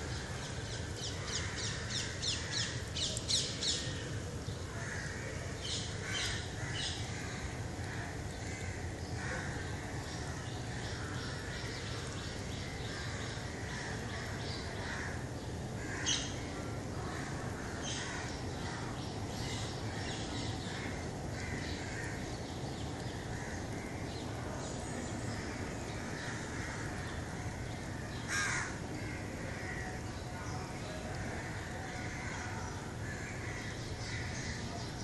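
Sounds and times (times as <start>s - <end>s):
crows cawing: 1.2s - 2.8s, 4.7s - 5.4s, 6.0s - 11.5s, 12.9s - 15.2s, 15.8s - 18.9s, 20.7s - 22.3s, 25.3s - 30.0s, 31.2s - 34.6s.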